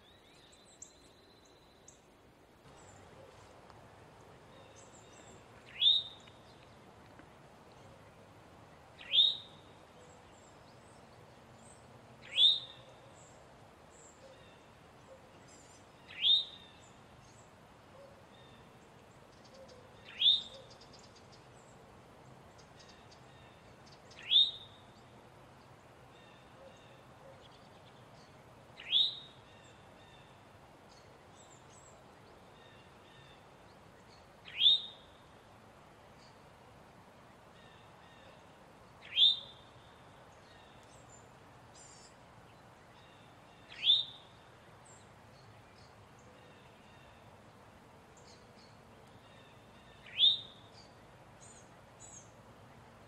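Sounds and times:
bird alarm call: 4.6 - 6.4, 9.0 - 10.2, 12.2 - 13.2, 16.0 - 16.9, 19.4 - 21.2, 24.1 - 24.8, 28.8 - 30.2, 34.4 - 35.2, 39.0 - 39.8, 43.5 - 44.4, 48.2 - 50.9.

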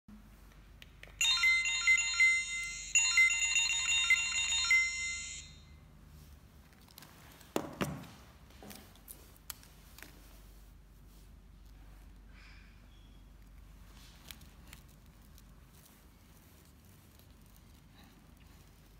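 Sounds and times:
rfid reader beeping: 1.2 - 5.5
label rustling and peeling: 13.4 - 18.9.

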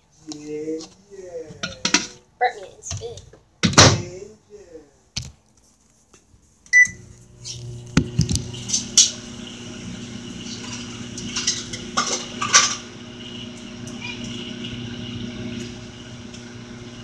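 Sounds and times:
microwave oven beep: 6.7 - 7.1, 13.3 - 15.8
microwave oven humming: 6.8 - 17.0.

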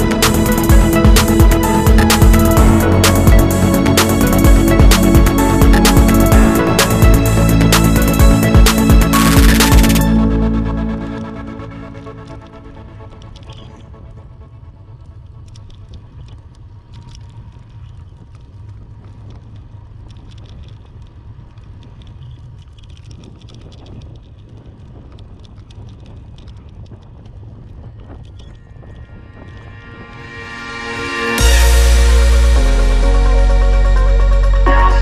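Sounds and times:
wind rumble on microphone: 11.1 - 31.9
bicycle clicks and rattles: 12.2 - 29.6.

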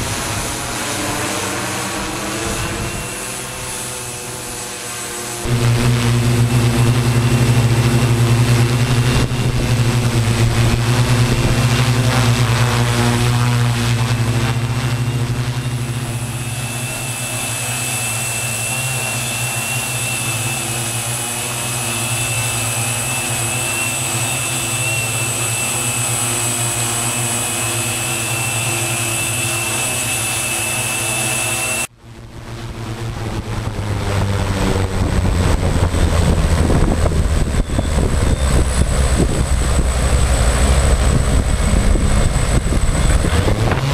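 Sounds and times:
drone motors humming: 0.0 - 43.9.

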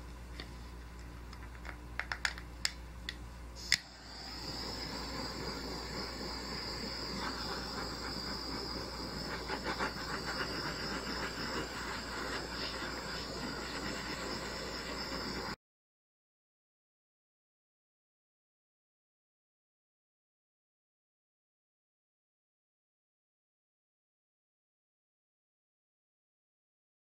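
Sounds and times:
torch igniter clicking: 0.4 - 7.9
butane torch hissing: 3.6 - 15.6.

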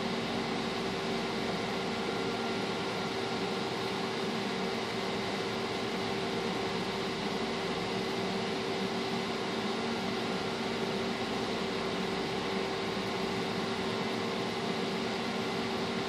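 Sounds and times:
fan whirring: 0.0 - 16.0
steady hum: 0.0 - 16.0.

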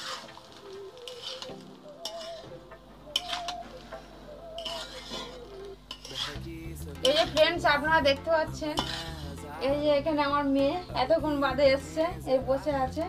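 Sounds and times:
metal spatula scraping a pan: 0.0 - 3.7, 4.6 - 7.6, 8.5 - 9.6
light sizzle: 0.0 - 4.0, 4.6 - 7.5, 8.5 - 9.4
spatula clinking against pan: 2.0 - 2.5, 4.6 - 6.4, 8.8 - 9.1.

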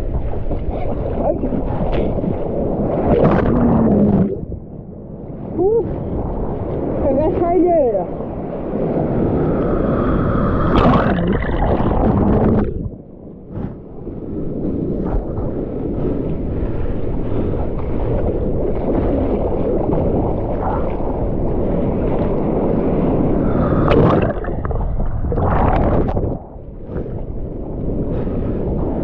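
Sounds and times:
whitewater rushing and churning: 8.8 - 12.9.

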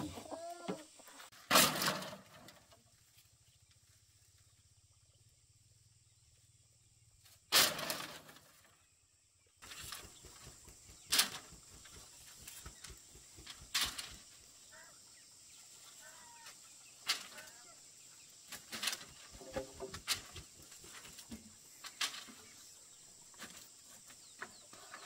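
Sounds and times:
chicken clucking: 0.0 - 1.3.

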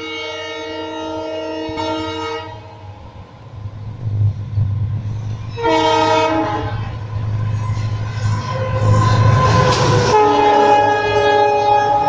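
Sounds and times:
locomotive air horn: 0.0 - 2.8, 5.5 - 12.0
diesel locomotive engine rumble: 0.0 - 12.0.

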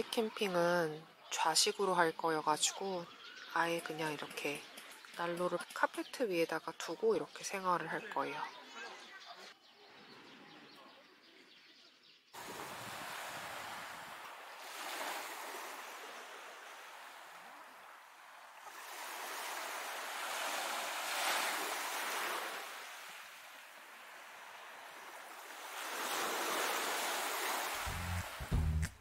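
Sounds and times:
waves washing onto beach: 12.4 - 28.5.

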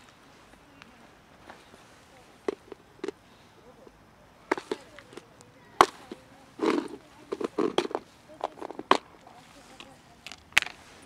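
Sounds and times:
dry kibble rattling: 1.5 - 3.4, 4.4 - 11.0.

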